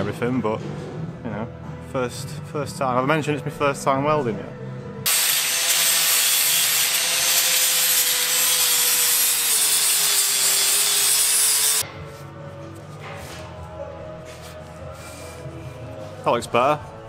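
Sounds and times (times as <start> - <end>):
angle grinder grinding metal: 5.1 - 11.8.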